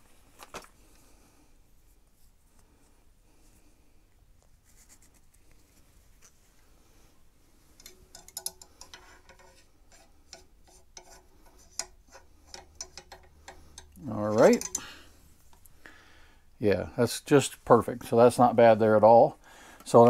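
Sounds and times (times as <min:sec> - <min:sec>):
cleaning rod rubbing in rifle: 0:07.8 - 0:14.9.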